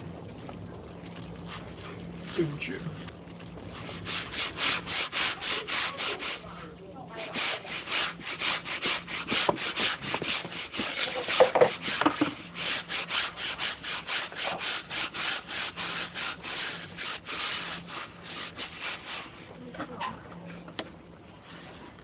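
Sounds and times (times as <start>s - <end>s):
rhythmic scraping strokes: 1.0s - 20.0s.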